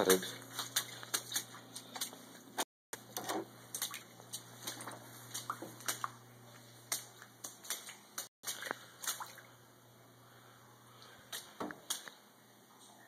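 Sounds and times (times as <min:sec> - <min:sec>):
boots splashing through water: 0:00.0 - 0:02.4, 0:03.7 - 0:09.5.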